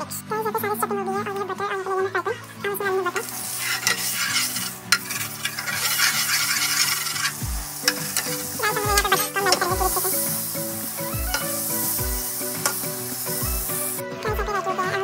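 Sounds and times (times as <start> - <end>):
spices sizzling in hot oil: 2.7 - 14.6
spatula scraping a pan: 3.1 - 14.0.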